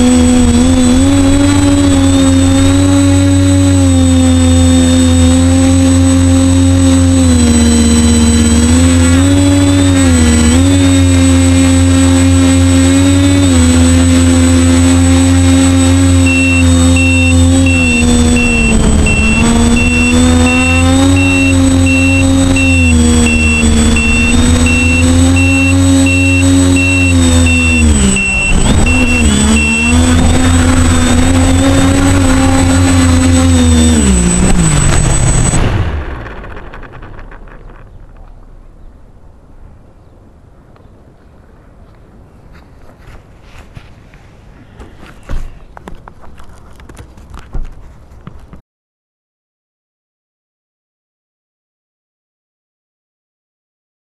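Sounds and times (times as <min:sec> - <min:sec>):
drone motors whining: 0:00.0 - 0:39.2.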